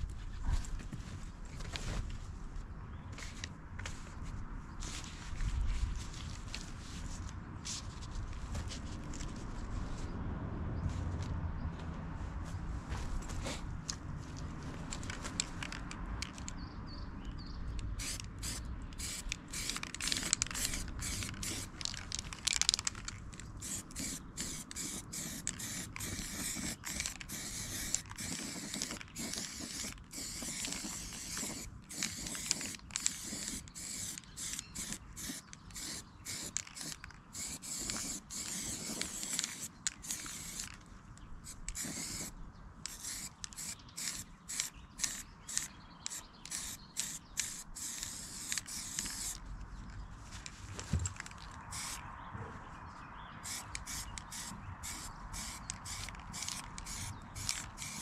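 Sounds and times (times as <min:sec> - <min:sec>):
spray hissing in bursts: 0:23.6 - 0:36.5, 0:53.5 - 0:58.0.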